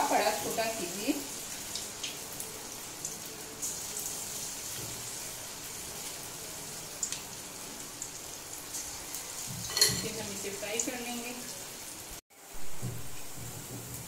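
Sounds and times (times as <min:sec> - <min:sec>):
batter sizzling in hot oil: 0:00.0 - 0:12.2, 0:12.8 - 0:14.0.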